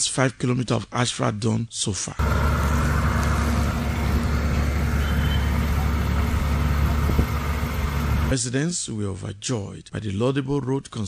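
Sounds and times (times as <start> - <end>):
heavy truck engine running: 2.2 - 8.3.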